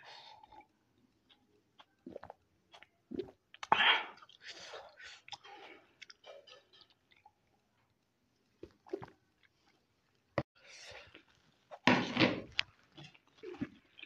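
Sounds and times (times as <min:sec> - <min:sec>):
person chewing and swallowing: 0:00.3 - 0:07.5, 0:08.6 - 0:09.8, 0:12.5 - 0:14.0.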